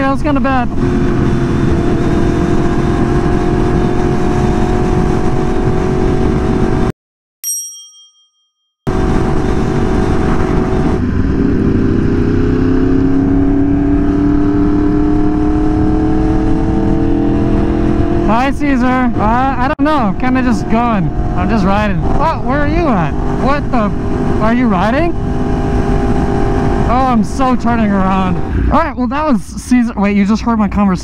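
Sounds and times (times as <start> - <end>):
bell-like chime: 7.4 - 8.7
motorcycle engine running: 8.9 - 28.8.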